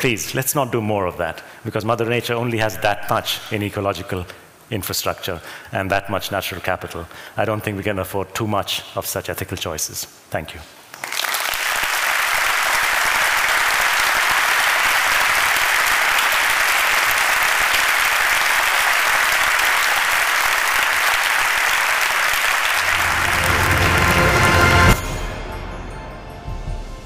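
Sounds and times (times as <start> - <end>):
audience applauding: 10.9 - 25.0
music: 22.8 - 27.0.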